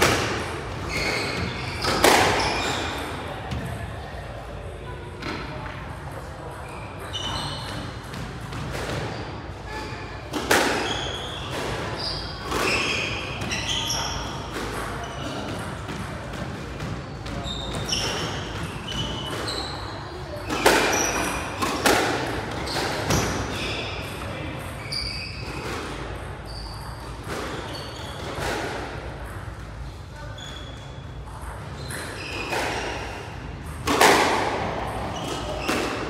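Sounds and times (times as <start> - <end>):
shoes squeaking on wooden floor: 0.8 - 3.1, 10.8 - 14.2, 17.1 - 19.8.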